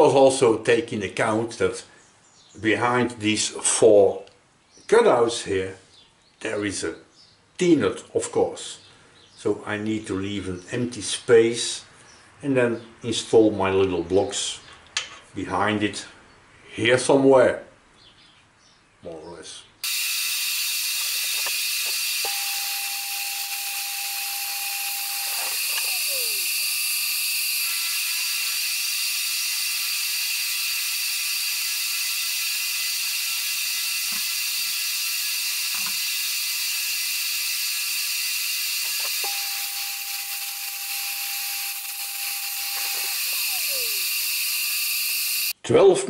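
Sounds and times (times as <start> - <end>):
milling machine cutting steel: 19.8 - 45.5
motor tone winding down: 19.8 - 45.5.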